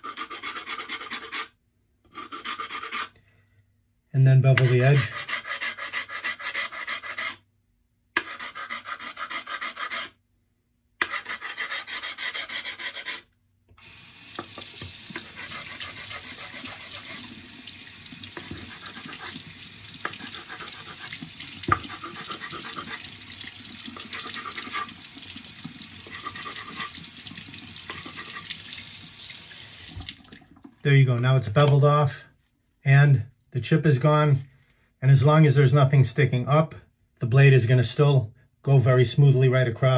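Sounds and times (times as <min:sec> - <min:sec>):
stone grinding on water stone: 0:11.0 - 0:13.3, 0:14.4 - 0:17.2, 0:18.3 - 0:19.4, 0:20.0 - 0:23.2, 0:23.8 - 0:25.0, 0:26.0 - 0:27.0, 0:27.8 - 0:28.6.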